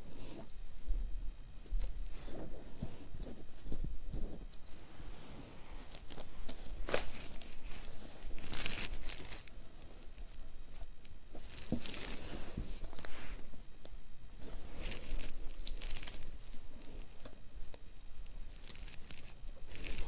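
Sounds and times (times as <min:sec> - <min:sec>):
cloth and newspaper rustling: 0:04.9 - 0:20.0.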